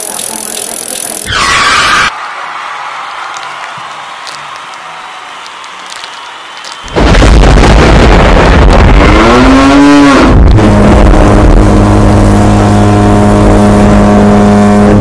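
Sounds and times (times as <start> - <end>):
loud motor-like drone: 7.8 - 15.0.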